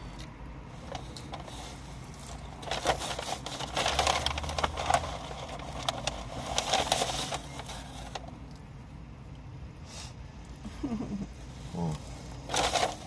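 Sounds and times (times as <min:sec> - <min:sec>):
low steady hum: 0:00.0 - 0:13.0
paper packaging rustling: 0:00.8 - 0:08.4, 0:12.4 - 0:13.0.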